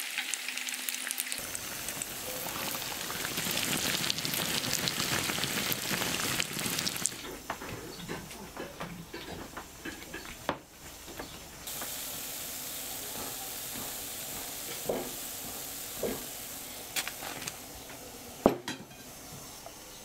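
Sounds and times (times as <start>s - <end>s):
food sizzling in hot oil: 0.0s - 7.3s, 11.7s - 19.9s.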